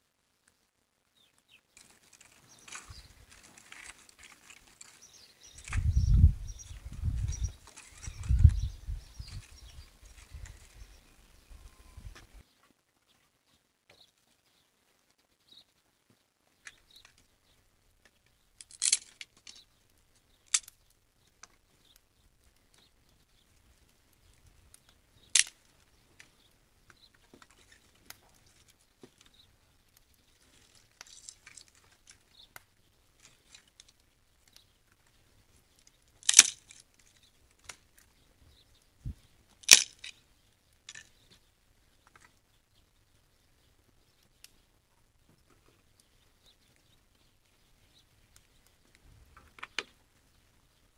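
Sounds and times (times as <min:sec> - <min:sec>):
firewood sticks being handled: 0:01.7 - 0:12.8, 0:18.0 - 0:42.6.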